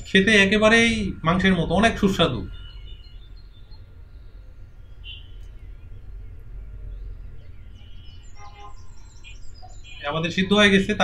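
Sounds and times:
steady low rumble: 0.0s - 8.4s
faint bird chirps: 0.7s - 11.0s.

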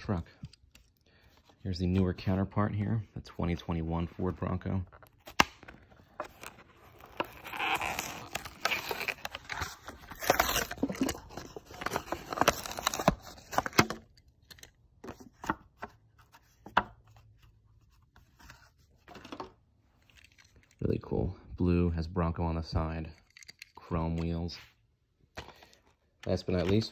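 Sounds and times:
cardboard ripping: 5.2s - 13.8s.

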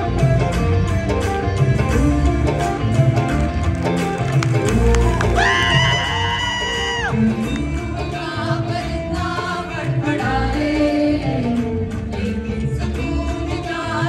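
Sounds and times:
instrumental accompaniment: 0.0s - 14.0s
group singing live: 5.3s - 14.0s.

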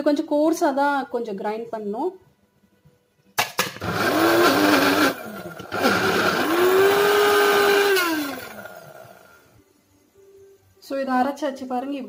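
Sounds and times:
mixer grinder grinding: 3.8s - 9.4s.

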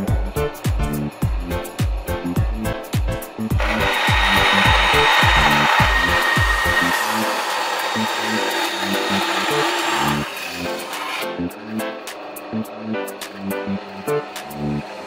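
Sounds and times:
thin high whine: 3.5s - 10.3s
band saw cutting wood: 3.5s - 15.0s.

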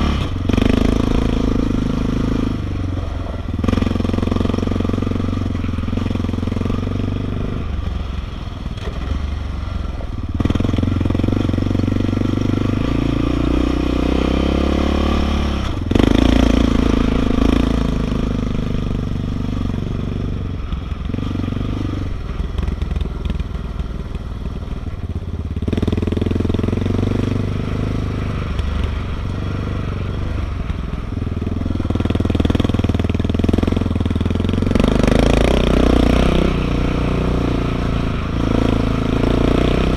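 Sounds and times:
gravel crunching under tyres: 0.0s - 11.9s
atv engine revving: 0.0s - 39.9s.

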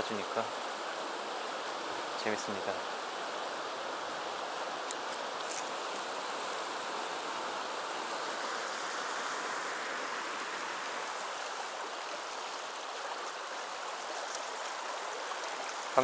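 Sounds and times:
river water rushing over rocks: 0.0s - 16.0s.

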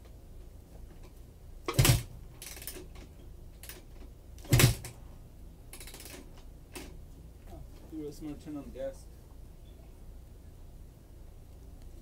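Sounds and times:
motorcycle kickstarter turning over: 1.7s - 3.0s, 4.4s - 5.0s.

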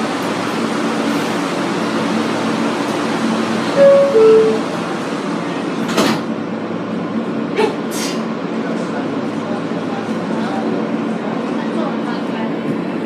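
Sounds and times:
two-note door chime: 3.8s - 4.7s.

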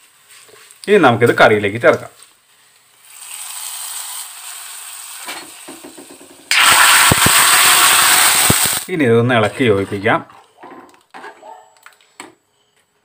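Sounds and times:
loud sizzle in a pot: 2.2s - 8.9s
oil sizzling in a pan: 2.4s - 8.9s.

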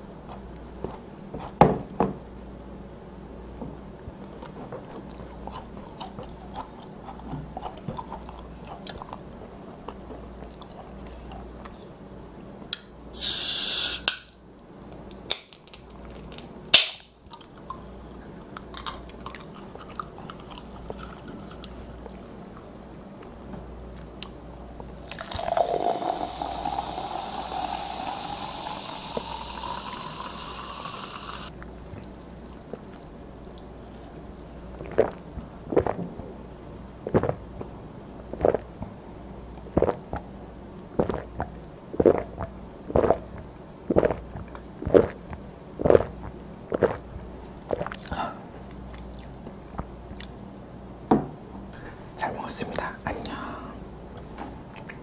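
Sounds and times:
soda fizzing as poured: 13.2s - 14.0s, 25.1s - 31.5s
loud gulping swallows: 34.8s - 36.2s, 37.0s - 37.7s, 38.3s - 38.9s, 39.7s - 40.3s, 41.0s - 48.3s.

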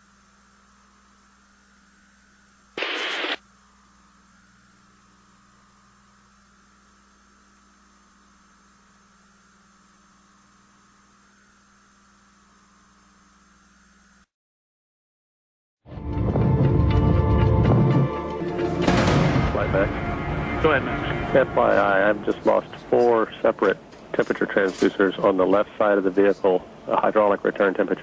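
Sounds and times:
low hum and hiss: 0.0s - 14.3s, 17.4s - 28.0s
loud burst of static: 2.8s - 3.4s.

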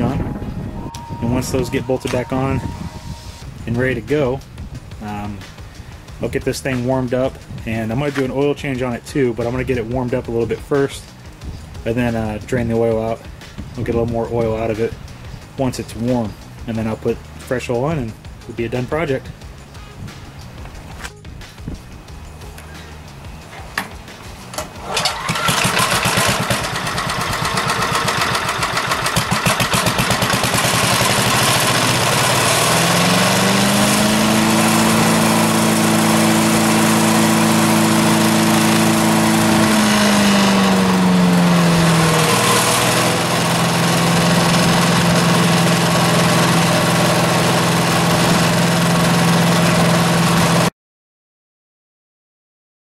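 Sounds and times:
recoil starter pull: 24.5s - 50.7s
small engine running: 24.5s - 50.7s.

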